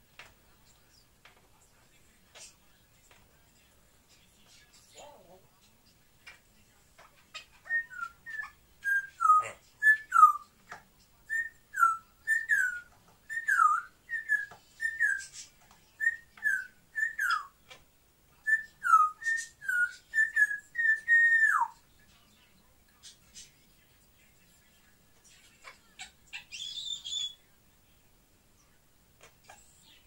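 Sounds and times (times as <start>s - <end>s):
parrot whistling: 16.1s - 17.5s, 18.5s - 21.8s.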